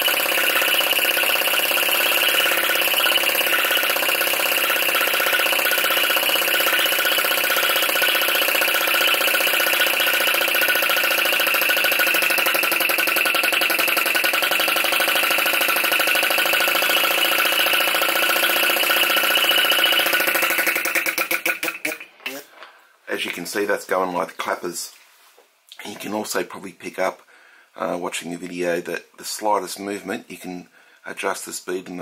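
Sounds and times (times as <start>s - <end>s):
small engine rapid clatter: 0.0s - 22.1s.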